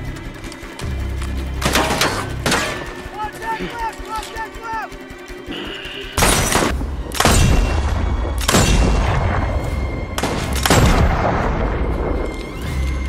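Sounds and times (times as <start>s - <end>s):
rifle gunshots echoing: 6.2s - 9.5s, 10.2s - 11.8s.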